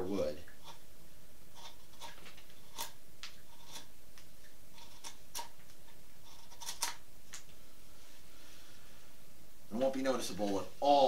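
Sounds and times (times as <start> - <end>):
knife shaving wood: 1.5 - 3.9.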